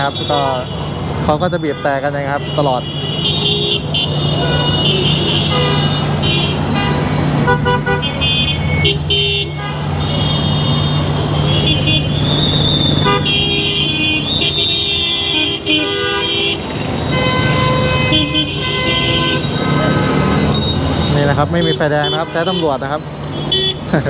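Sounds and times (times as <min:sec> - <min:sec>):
car horns honking: 0:00.0 - 0:24.0
engines running: 0:16.6 - 0:24.0.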